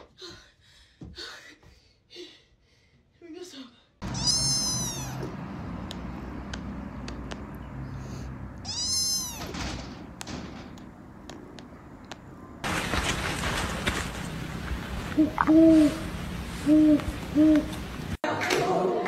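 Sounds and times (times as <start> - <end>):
kitten meowing: 4.0 - 5.3, 8.6 - 9.5.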